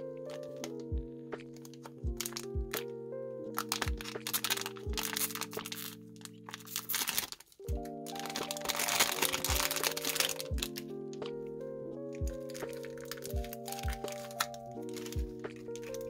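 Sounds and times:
background music: 0.0s - 16.0s
plastic bag crinkling: 1.4s - 2.5s, 3.5s - 10.8s, 12.4s - 16.0s.

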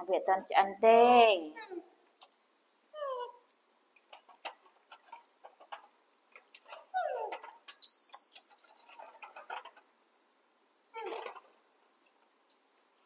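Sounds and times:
baby monkey crying and squealing: 7.0s - 8.5s.

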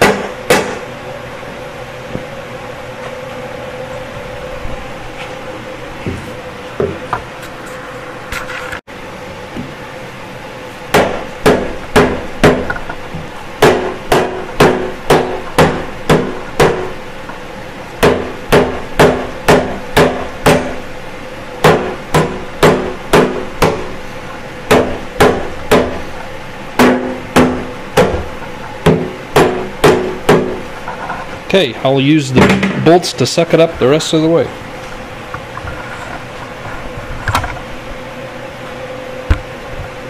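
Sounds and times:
mallet striking metal housing: 26.8s - 30.7s.

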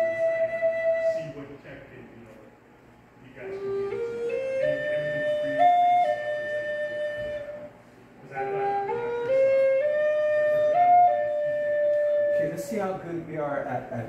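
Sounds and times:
wooden flute melody: 0.0s - 1.6s, 3.4s - 13.0s.

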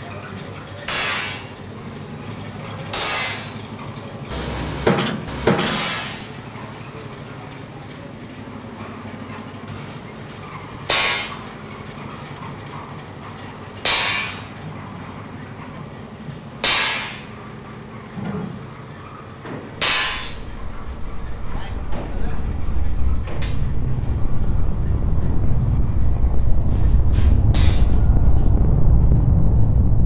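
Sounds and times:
steady low hum: 4.3s - 6.4s, 19.7s - 30.0s.

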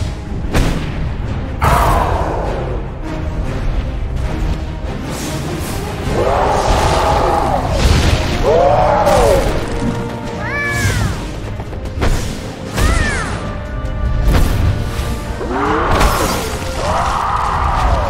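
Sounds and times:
cartoon music: 10.3s - 11.3s.

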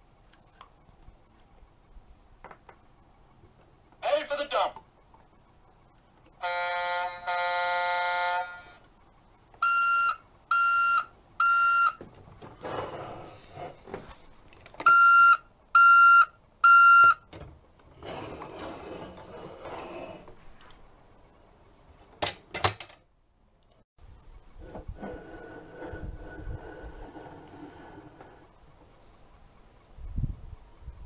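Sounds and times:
toy horn-like tone: 6.4s - 8.8s
short electronic beeps: 14.9s - 17.2s.

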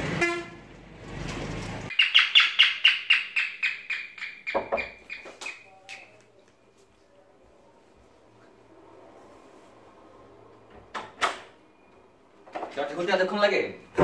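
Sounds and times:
street traffic noise: 0.0s - 14.0s
high bird-like chirps: 1.9s - 6.2s.

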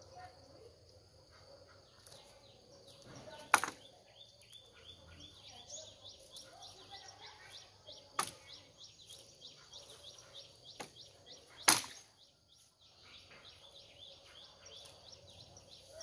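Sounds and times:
machete chopping bamboo: 3.4s - 3.8s, 8.2s - 8.5s, 11.6s - 12.1s.

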